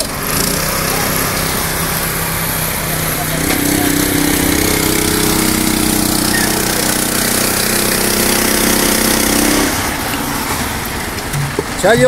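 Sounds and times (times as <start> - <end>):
concrete mixer engine running: 0.0 - 12.0.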